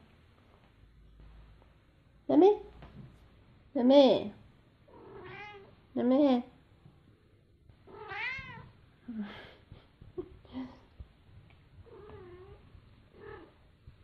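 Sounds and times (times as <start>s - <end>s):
cat meowing: 4.9s - 5.7s, 7.9s - 8.7s, 13.2s - 13.5s.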